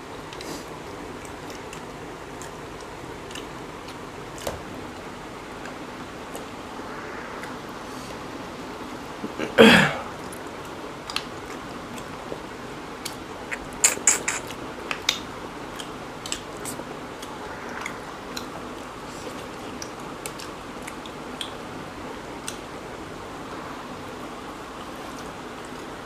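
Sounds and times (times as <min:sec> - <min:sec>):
people chewing: 0:00.3 - 0:04.6, 0:10.2 - 0:21.6.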